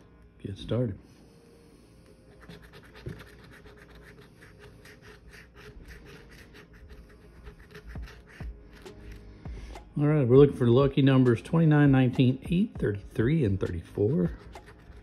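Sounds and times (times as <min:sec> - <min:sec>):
coin scratching lottery ticket: 0:02.3 - 0:09.2, 0:13.6 - 0:15.0.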